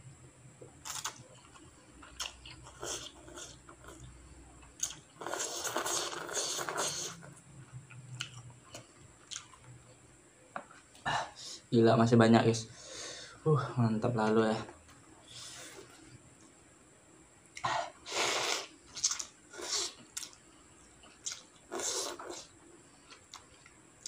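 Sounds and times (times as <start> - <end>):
wet chewing and mouth clicks: 0.8 - 9.8, 21.0 - 22.5
slurping noodles: 5.2 - 7.3.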